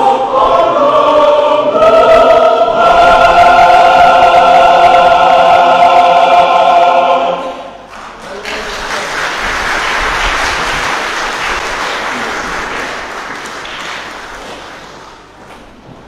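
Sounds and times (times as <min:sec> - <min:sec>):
choir final chord: 0:00.0 - 0:07.8
audience applauding: 0:07.9 - 0:15.3.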